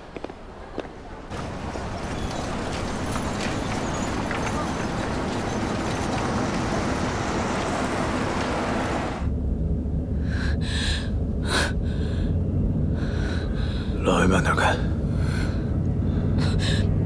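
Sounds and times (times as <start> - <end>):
busy street noise: 0.0 - 9.3.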